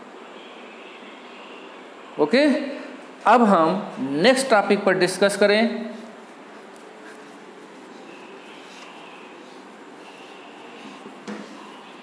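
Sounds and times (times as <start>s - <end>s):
eraser scrubbing whiteboard: 5.9s - 12.0s.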